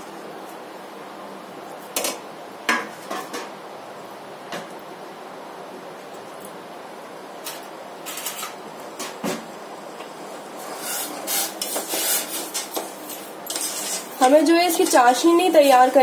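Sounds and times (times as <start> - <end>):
spoon scraping a metal saucepan: 13.5 - 15.0.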